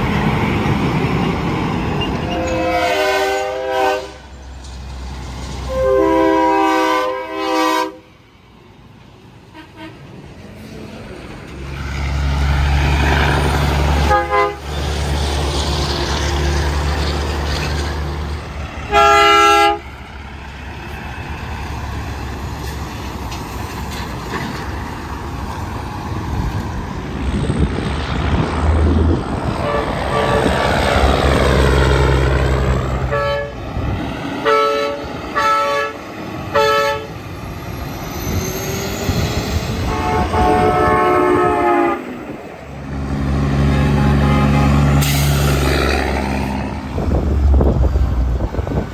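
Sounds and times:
truck passing by: 0.0 - 48.9
truck train horn blasts: 2.2 - 4.4, 5.6 - 8.1, 9.5 - 10.1, 14.0 - 14.8, 18.8 - 20.0, 29.6 - 30.8, 33.0 - 33.8, 34.4 - 37.2, 39.8 - 45.7.

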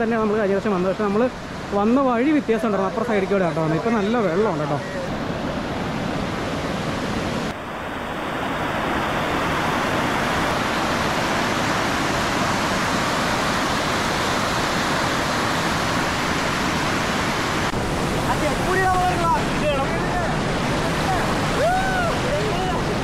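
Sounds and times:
waterfall rushing: 0.0 - 23.0.

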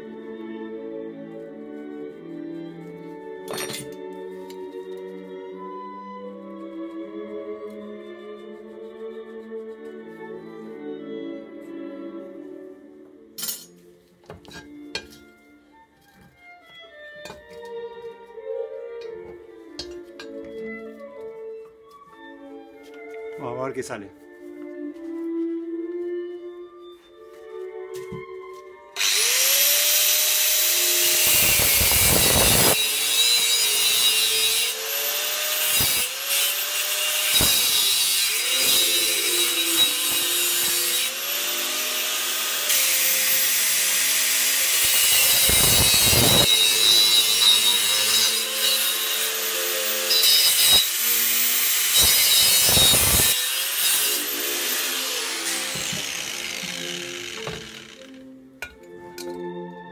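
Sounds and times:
angle grinder cutting steel: 29.0 - 58.8.

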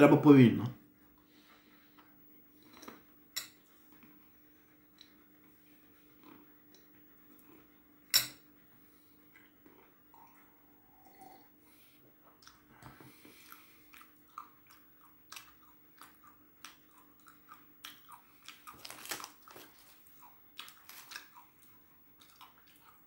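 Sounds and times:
person chewing crunchy peanuts: 12.4 - 23.0.

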